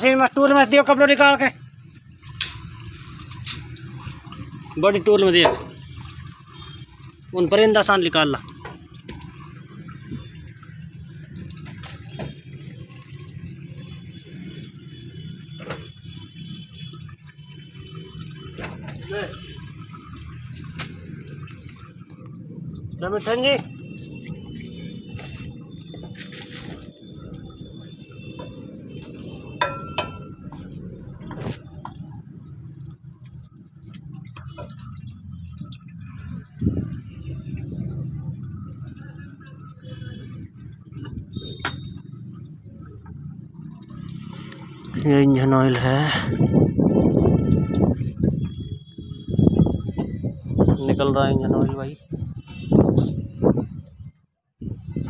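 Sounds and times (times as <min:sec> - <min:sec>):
oil trickling into a plastic tub: 0:00.0 - 0:53.8.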